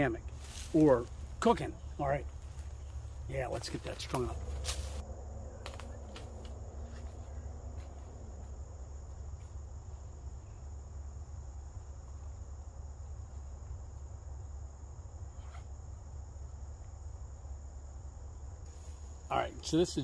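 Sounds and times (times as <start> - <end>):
insect chorus trilling: 0.0 - 20.0
low rumble: 4.2 - 13.0.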